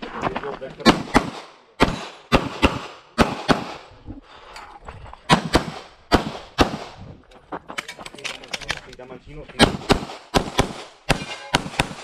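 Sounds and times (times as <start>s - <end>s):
pistol shots: 0.8s - 3.8s, 5.3s - 7.0s, 9.6s - 12.0s.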